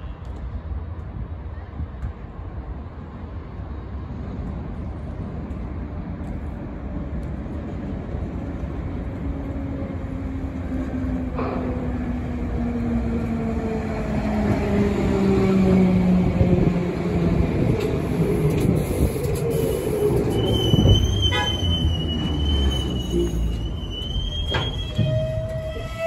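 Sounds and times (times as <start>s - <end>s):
train wheels rumbling: 3.5s - 26.0s
high steady brake squeal: 19.5s - 26.0s.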